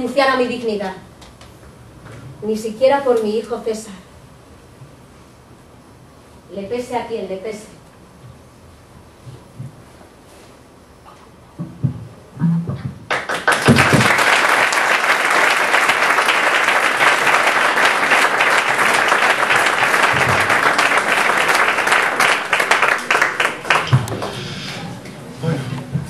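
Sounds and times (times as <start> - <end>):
audience applauding: 13.1 - 24.9.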